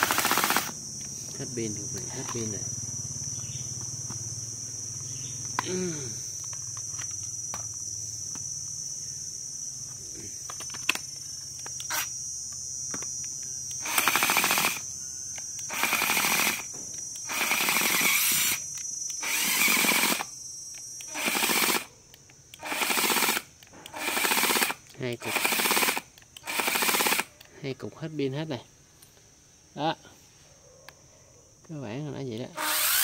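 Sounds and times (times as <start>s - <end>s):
cordless drill buzzing: 0.0s - 0.8s, 11.8s - 12.2s, 13.7s - 14.9s, 15.6s - 20.4s, 21.0s - 21.9s, 22.6s - 27.3s, 32.6s - 33.0s.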